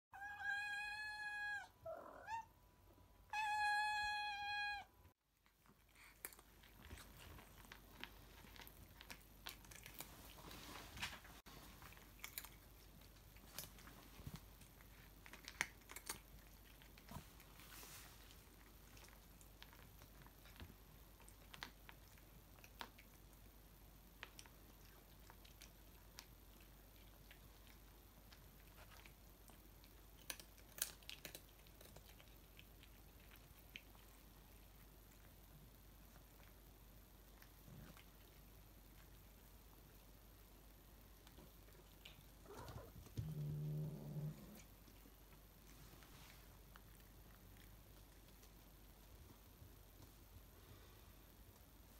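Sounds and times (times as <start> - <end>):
cat meowing: 0.2 - 2.5, 3.3 - 4.9
cats crunching dry treats: 5.4 - 43.4, 44.2 - 50.4.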